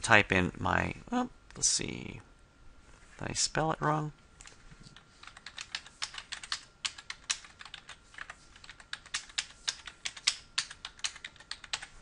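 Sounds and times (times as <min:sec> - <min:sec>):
computer keyboard typing: 0:05.0 - 0:12.0.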